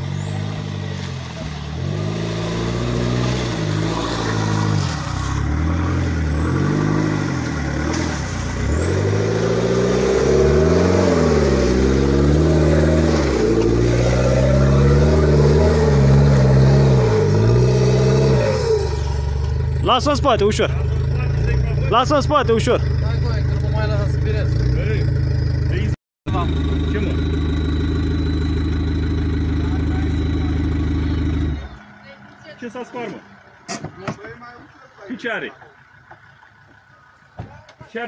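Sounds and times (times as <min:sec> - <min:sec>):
suv engine revving: 0:00.0 - 0:37.5.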